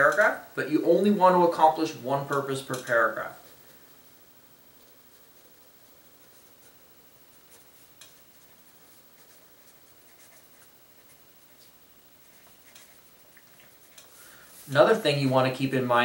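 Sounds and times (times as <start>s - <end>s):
pencil writing on paper: 7.4s - 11.2s.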